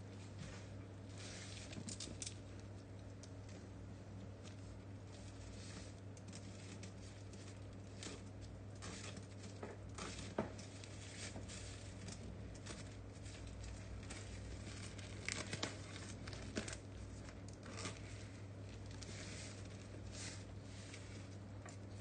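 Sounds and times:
plastic wrapping crinkling and tearing: 0:05.1 - 0:22.0.

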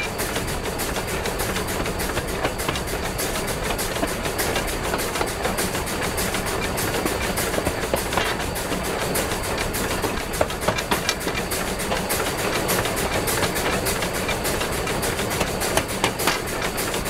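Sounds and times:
clicks and knocks of wheels and rods: 0:00.0 - 0:17.0
steam locomotive hiss: 0:00.0 - 0:17.0.

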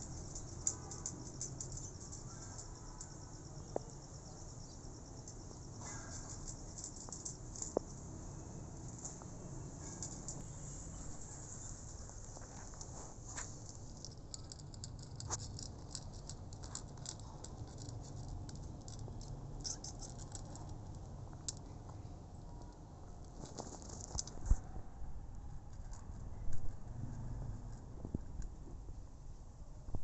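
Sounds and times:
cat crunching dry kibble: 0:12.8 - 0:21.8.

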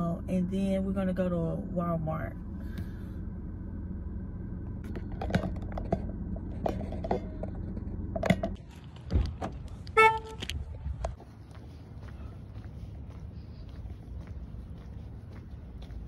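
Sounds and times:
low steady hum: 0:00.0 - 0:16.0
handling clicks and knocks: 0:04.8 - 0:11.2
car horn beep: 0:09.9 - 0:10.6.

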